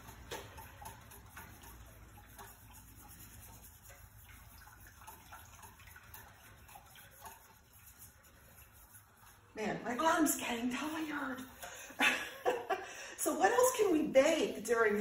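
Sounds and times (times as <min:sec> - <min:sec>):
spoon stirring sauce in saucepan: 0:00.0 - 0:12.0.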